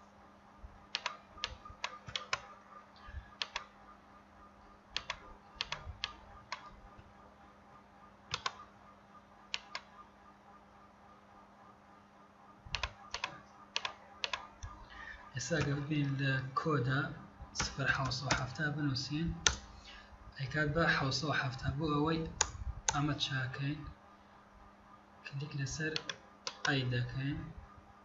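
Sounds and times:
faint steady hum: 0.0s - 28.0s
mouse and keyboard clicks: 0.9s - 2.6s, 3.4s - 3.7s, 5.0s - 7.1s, 8.3s - 8.6s, 9.5s - 9.9s, 17.6s - 18.5s, 26.0s - 26.7s.

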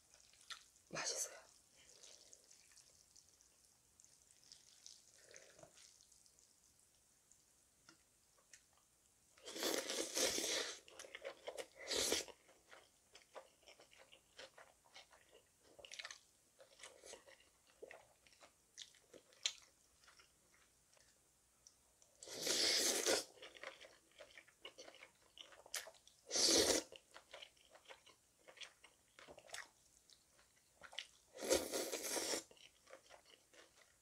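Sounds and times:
wet chewing with smacking: 1.8s - 8.8s, 10.8s - 21.2s
slurping noodles: 4.4s - 6.0s, 22.2s - 23.4s, 31.4s - 32.5s.

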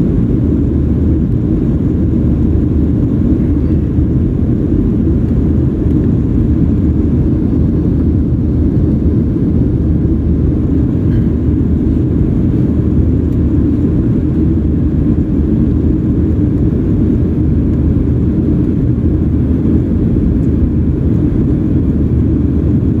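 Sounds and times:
airplane cabin engine noise: 0.0s - 23.0s.

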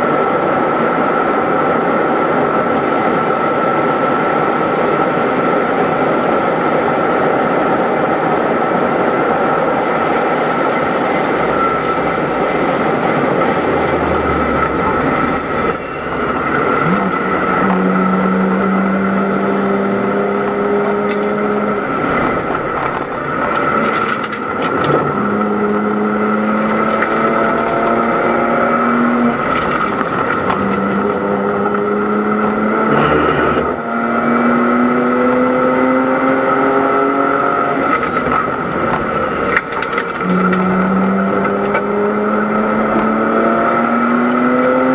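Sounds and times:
steady high whine: 0.0s - 34.3s
race car engine: 0.0s - 44.9s
wind and road noise: 0.0s - 44.9s
gear changes: 9.4s - 34.8s.

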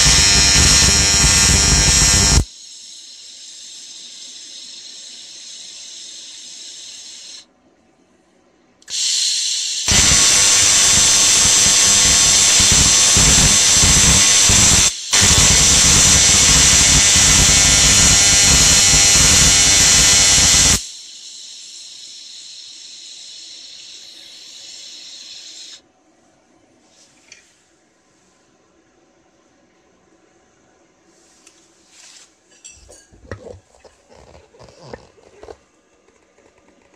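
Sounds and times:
welding arc buzzing: 0.0s - 2.5s, 8.9s - 20.9s
steady hiss: 1.6s - 7.5s, 19.4s - 25.8s.

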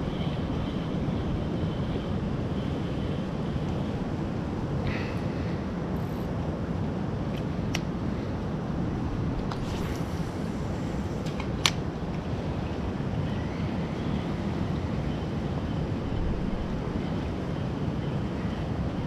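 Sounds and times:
wind buffeting microphone: 0.0s - 19.0s
sharp click: 11.2s - 11.8s.

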